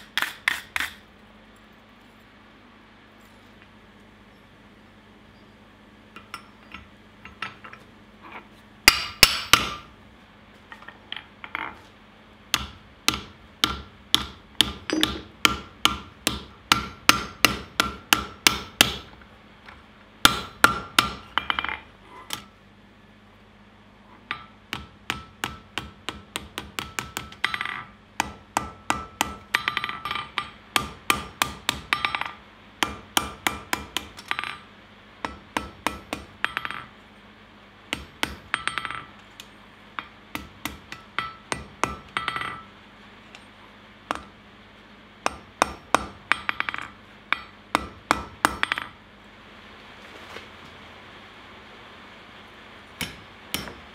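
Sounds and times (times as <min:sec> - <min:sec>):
hammer ringing on anvil: 0:12.6 - 0:19.0, 0:40.0 - 0:42.7, 0:53.0 - 0:53.8
tool knocking on anvil: 0:12.6 - 0:19.0.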